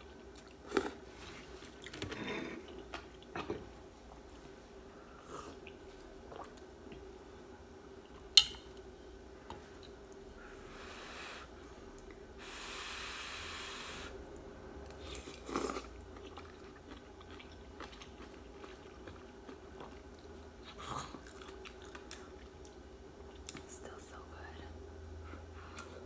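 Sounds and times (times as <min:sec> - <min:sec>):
soft chewing with mouth clicks: 0:00.0 - 0:07.2, 0:07.9 - 0:10.5, 0:14.3 - 0:26.0
breathy hisses: 0:10.6 - 0:11.5, 0:12.4 - 0:14.2.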